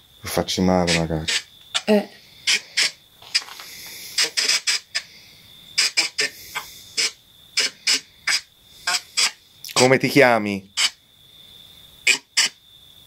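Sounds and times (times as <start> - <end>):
radio sweeping static bursts: 0.4 - 1.5, 2.4 - 11.0, 12.0 - 12.6.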